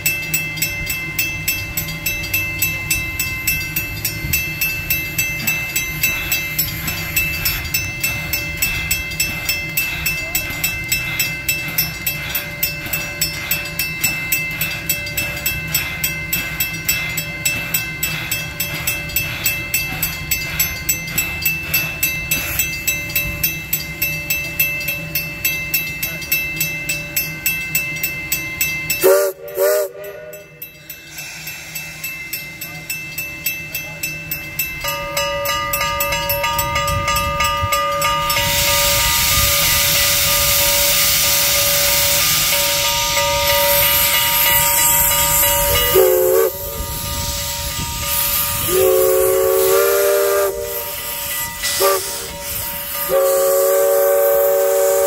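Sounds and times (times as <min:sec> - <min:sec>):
steam locomotive pulsing: 0:00.0 - 0:55.0
steady multi-note steam whistle: 0:24.6 - 0:55.0
steam whistle blast: 0:29.0 - 0:30.5, 0:38.4 - 0:55.0.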